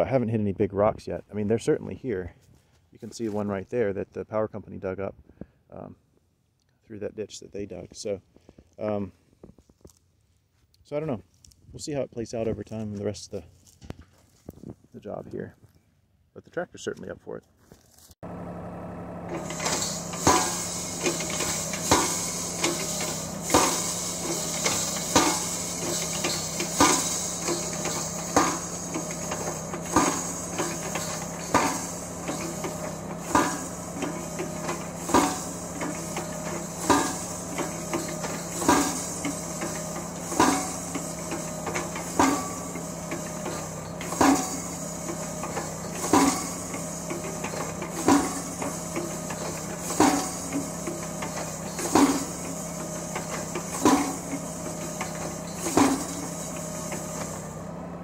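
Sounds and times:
tractor engine running: 18.2 - 58.0
post driver pounding wooden post: 19.3 - 57.0.

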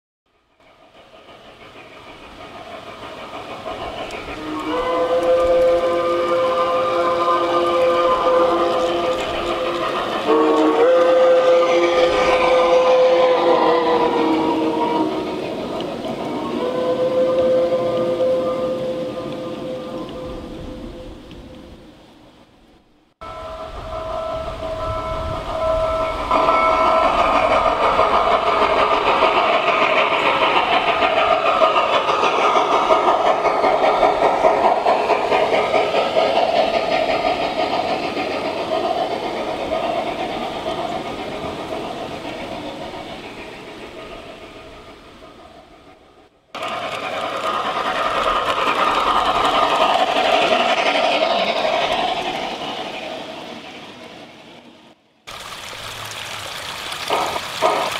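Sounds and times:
model train wheels clattering: 0.6 - 16.4, 26.4 - 44.2, 46.6 - 53.8, 57.1 - 57.9.

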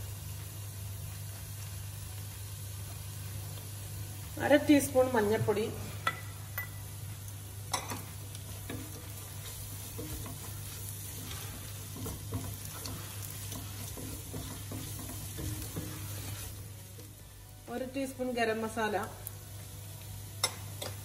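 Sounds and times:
vegetables sizzling in oil: 0.0 - 21.0
spatula scraping and tapping pan: 7.7 - 16.6.

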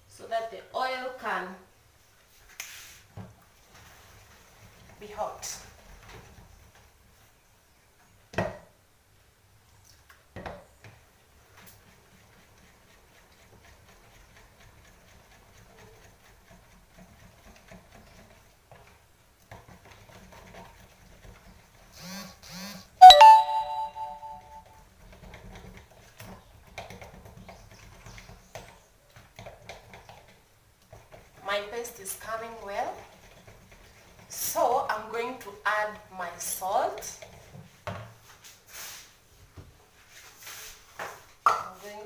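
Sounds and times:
ringing ding: 23.0 - 24.6.

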